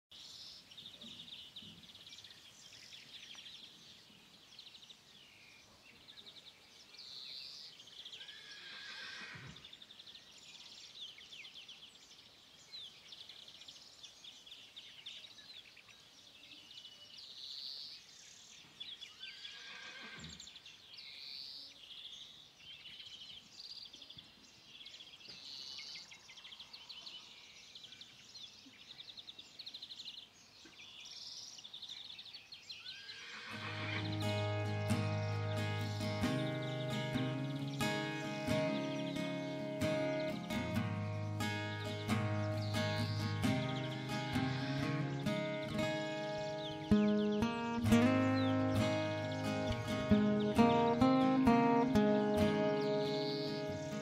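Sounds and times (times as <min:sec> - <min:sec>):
faint birds chattering: 0:00.1 - 0:54.0
horse whinnying: 0:08.2 - 0:09.6, 0:19.3 - 0:20.4, 0:32.9 - 0:34.2.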